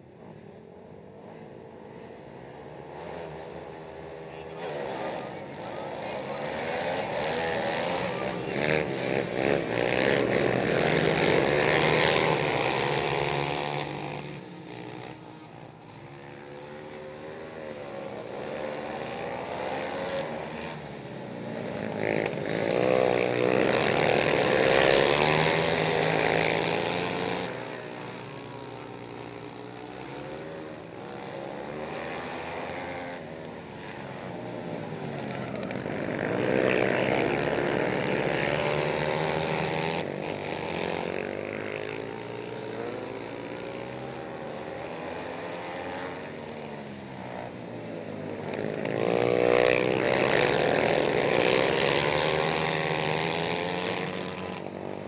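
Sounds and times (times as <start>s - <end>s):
racing atv engines revving: 0.0s - 55.0s.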